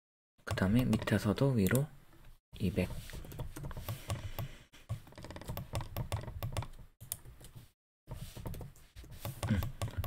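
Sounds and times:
computer keyboard keys clicking: 3.2 - 7.3, 9.3 - 10.0.

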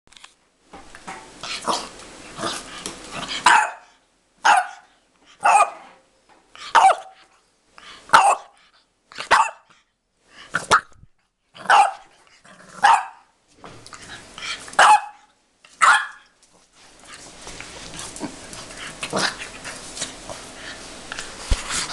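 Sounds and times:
puppy barking: 3.4 - 5.9, 6.7 - 7.2, 8.1 - 8.6, 9.2 - 9.7, 11.6 - 12.1, 12.8 - 13.3, 14.8 - 16.3
puppy growling: 17.6 - 21.9.

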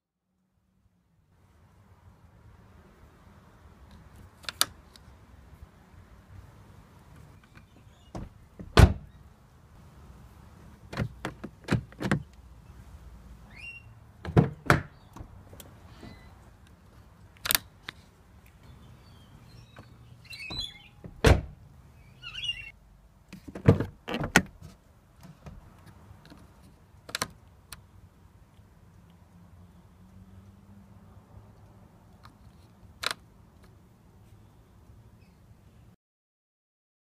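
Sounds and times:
car door heavy thunks: 8.1 - 9.0, 21.1 - 21.6.

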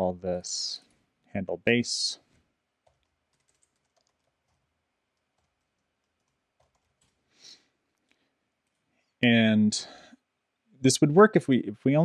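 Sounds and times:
computer keyboard keystrokes: 2.8 - 4.6, 5.2 - 7.2.

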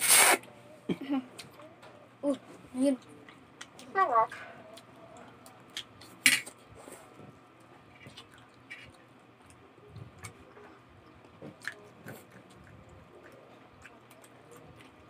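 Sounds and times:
wet chewing: 7.9 - 15.0.

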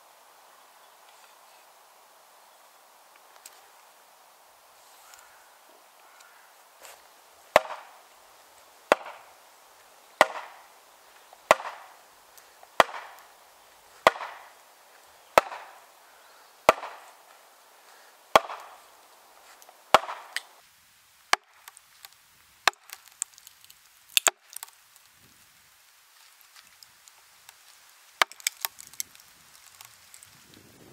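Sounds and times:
maul striking axe: 7.5 - 8.0, 8.9 - 9.3, 10.2 - 10.7, 11.5 - 12.0, 12.8 - 13.3, 14.0 - 14.5, 15.4 - 15.8, 16.7 - 17.1, 18.3 - 18.8, 19.9 - 20.5.

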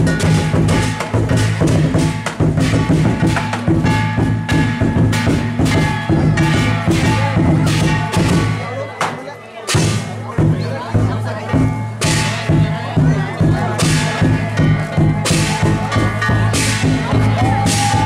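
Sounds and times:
cymbals clashing: 0.0 - 18.0
deep drum beating: 0.0 - 18.0.

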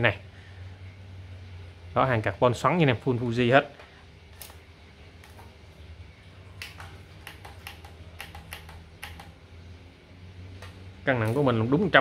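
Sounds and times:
light sharp clicks: 6.6 - 9.4.

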